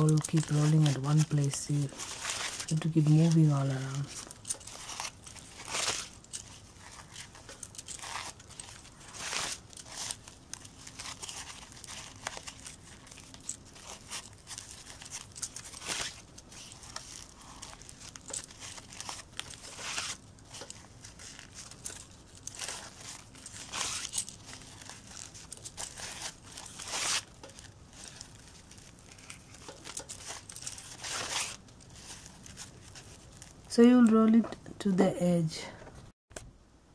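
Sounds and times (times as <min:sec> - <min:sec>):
fabric rustling and crinkling: 0:00.0 - 0:34.6.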